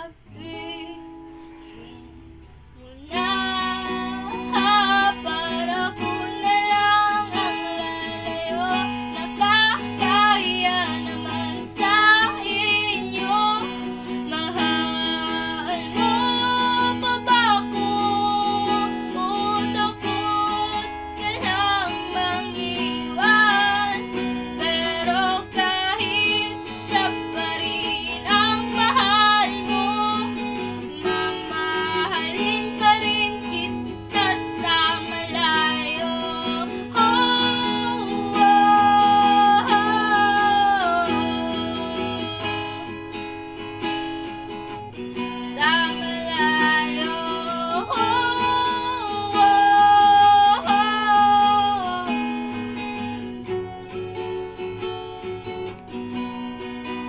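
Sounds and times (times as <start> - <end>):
girl singing a ballad: 0.0 - 54.2
acoustic guitar strumming: 0.0 - 57.0.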